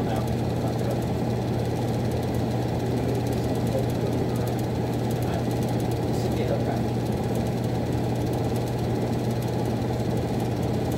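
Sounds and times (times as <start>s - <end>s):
furnace blower noise: 0.0s - 10.9s.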